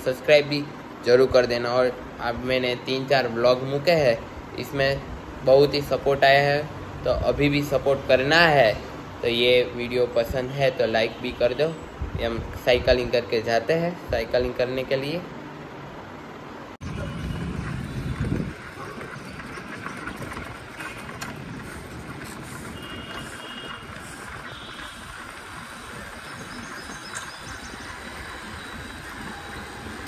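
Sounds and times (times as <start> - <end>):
bicycle tyres on road: 16.8 - 30.0
wind on microphone: 16.8 - 30.0.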